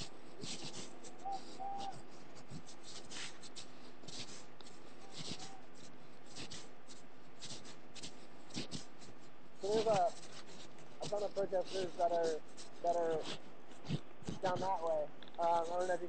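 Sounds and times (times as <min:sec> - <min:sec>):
scratchy rustling: 0:00.0 - 0:16.0
steady low hum: 0:00.0 - 0:16.0
faint voice-like call: 0:01.0 - 0:02.1, 0:05.1 - 0:05.8.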